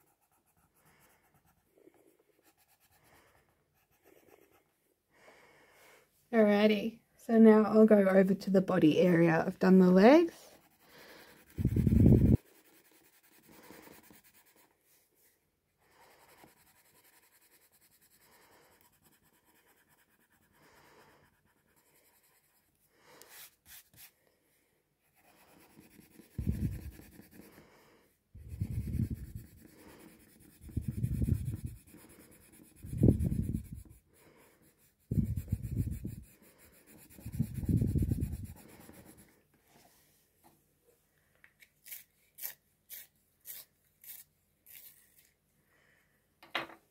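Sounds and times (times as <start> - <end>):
heavy pencil rubbing strokes: 0.0 - 4.8, 10.3 - 24.2, 25.0 - 27.7, 28.4 - 39.8
pencil scratching on paper: 0.0 - 4.8, 10.3 - 14.8, 15.9 - 24.2, 25.0 - 27.7, 28.4 - 39.4.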